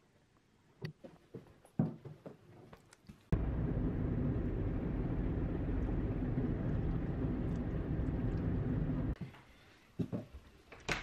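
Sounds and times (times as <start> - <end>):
faint hum: 3.3 - 9.2
car interior engine and road noise: 3.4 - 9.2.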